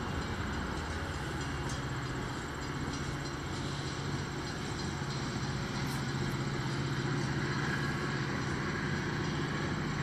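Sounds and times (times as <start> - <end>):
locomotive engine idling: 0.0 - 10.0.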